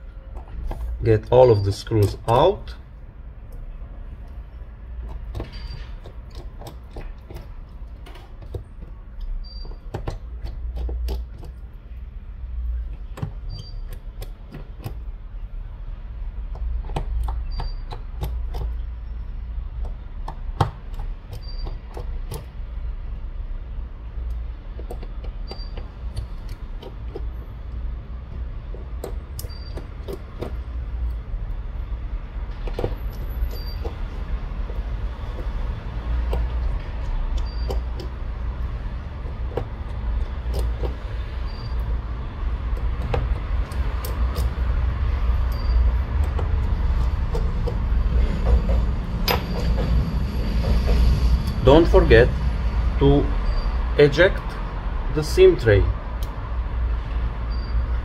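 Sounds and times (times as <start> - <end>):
screwdriver clicks and taps: 5.0 - 11.6, 16.5 - 18.8, 24.2 - 27.3, 32.6 - 41.0, 42.6 - 44.8.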